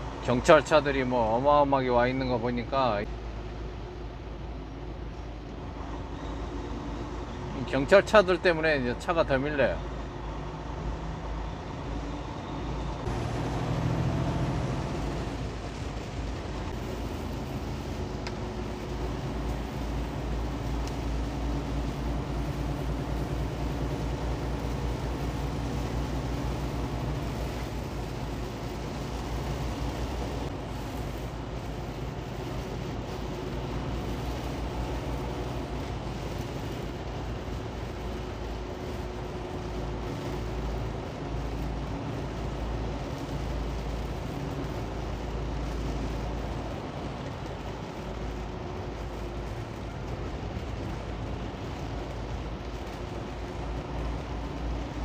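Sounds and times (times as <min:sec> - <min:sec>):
truck engine drone: 0:00.0 - 0:55.0
tyres hissing on wet road: 0:00.0 - 0:55.0.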